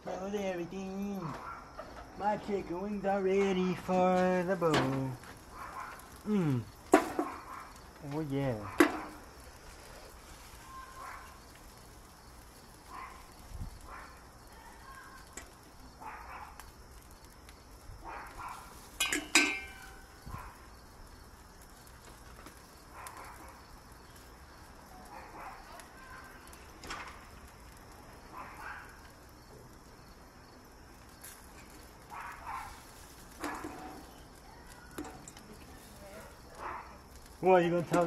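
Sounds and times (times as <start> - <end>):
metal tongs clinking: 19.0 - 19.9.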